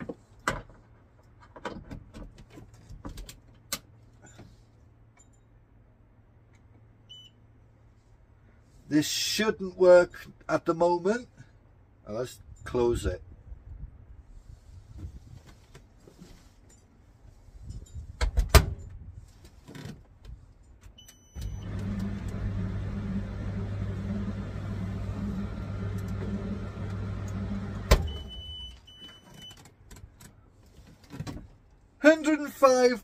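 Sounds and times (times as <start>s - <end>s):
dryer drum motor humming: 21.4s - 28.3s
dryer door shutting: 25.4s - 28.4s.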